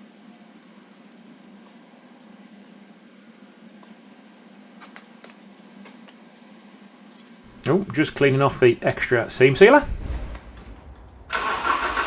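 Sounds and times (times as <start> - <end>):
low hum: 7.4 - 12.0.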